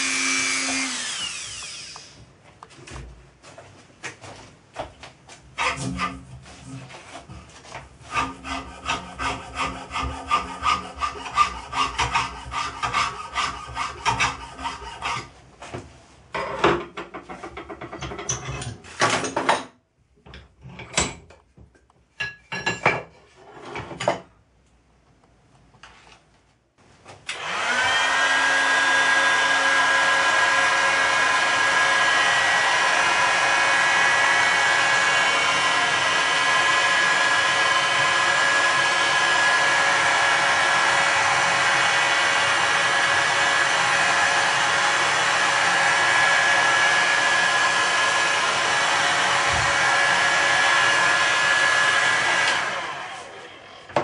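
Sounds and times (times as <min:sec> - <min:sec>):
hot air gun whining: 0:00.0 - 0:02.2, 0:27.3 - 0:53.6
file rasping on metal: 0:08.0 - 0:15.4.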